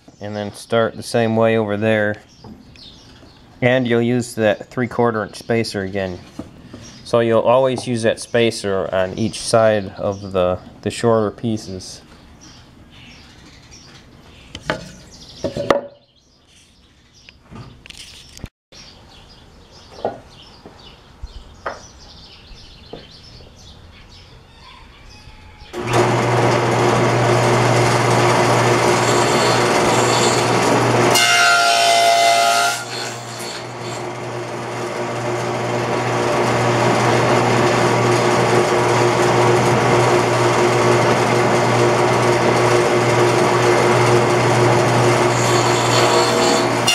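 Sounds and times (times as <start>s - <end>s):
table saw running: 25.7s - 46.9s
saw cutting wood: 25.8s - 46.9s.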